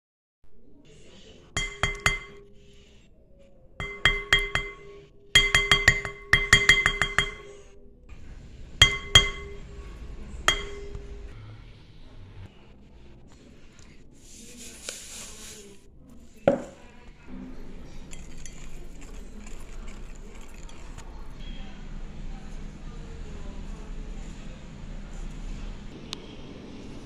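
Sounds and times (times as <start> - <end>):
spoon tapping a glass bowl: 1.6 - 2.5, 3.8 - 7.7, 8.8 - 9.7, 10.5 - 11.1, 18.1 - 20.8.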